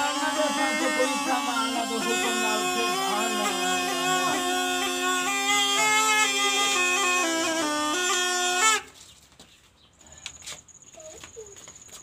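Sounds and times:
gourd pipe melody over drone: 0.0 - 8.9.

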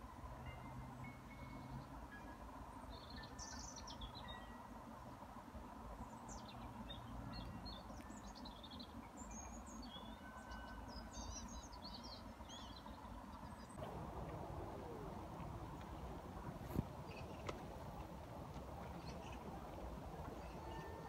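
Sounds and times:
faint steady background noise: 0.0 - 21.0
small birds chirping: 6.0 - 21.0.

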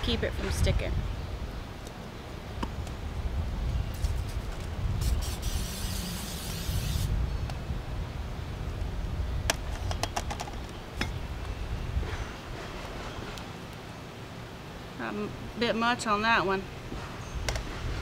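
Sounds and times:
aerosol spray hissing: 5.0 - 7.1.

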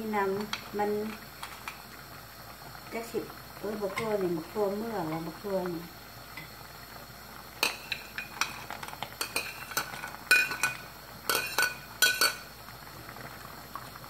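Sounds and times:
metal ladle clinking on plate and pot: 7.6 - 8.6, 9.2 - 12.4.

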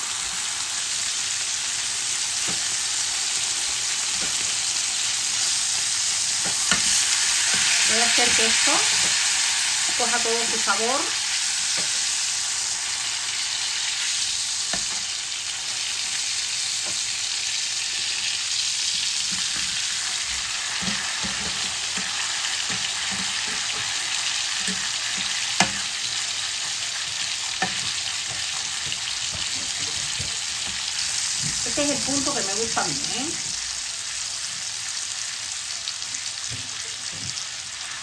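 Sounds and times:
steaks sizzling in butter: 0.0 - 38.0
metal spoon scraping a pan: 6.4 - 9.2.

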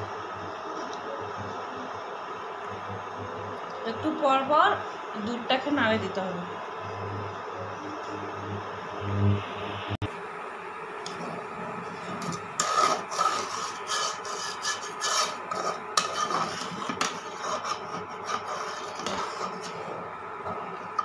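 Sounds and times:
metal spoon scraping a pot: 11.1 - 20.1.

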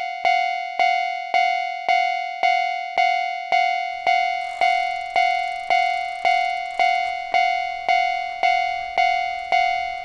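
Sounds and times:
railroad crossing bell ringing: 3.6 - 10.0.

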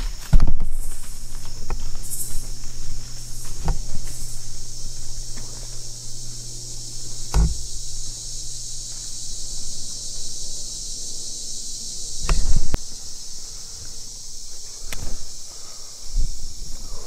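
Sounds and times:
crickets and katydids chorus: 0.0 - 17.0
low thumps and sharp knocks: 0.2 - 5.9, 7.0 - 8.0, 12.2 - 12.8.

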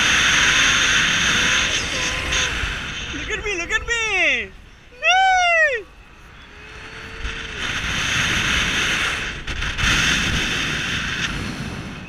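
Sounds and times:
wind rushing over microphone: 0.0 - 12.0.

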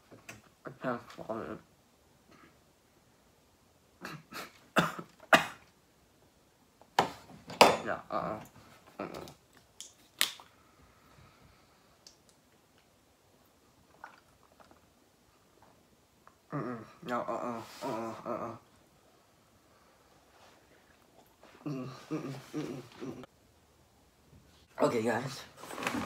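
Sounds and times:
person coughing: 4.0 - 5.6.

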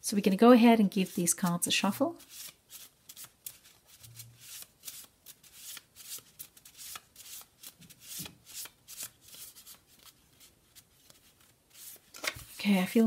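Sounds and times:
cards being shuffled: 2.2 - 12.6.

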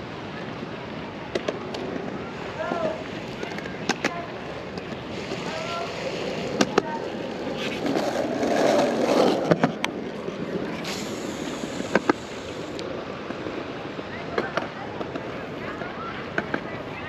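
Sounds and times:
rushing noise: 4.2 - 14.2.

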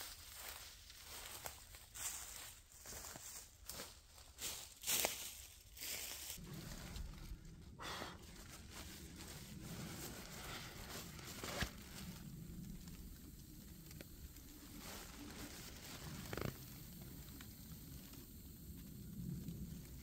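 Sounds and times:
camp gear rustling and crinkling: 0.0 - 18.4.

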